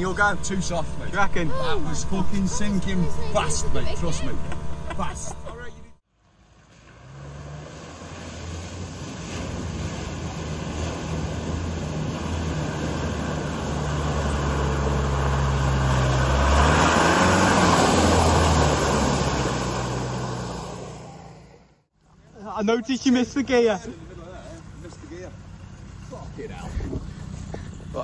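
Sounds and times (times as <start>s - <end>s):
vehicle engine under load: 0.0s - 21.9s
water and mud splashing: 6.2s - 21.0s.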